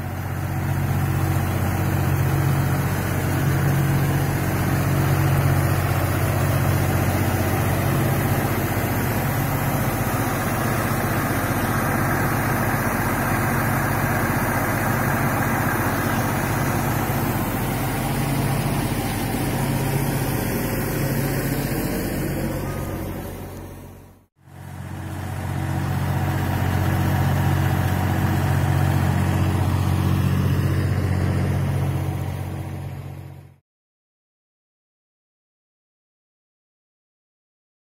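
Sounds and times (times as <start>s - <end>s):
diesel tractor engine running: 0.0s - 33.6s
water rushing and splashing: 0.2s - 23.7s.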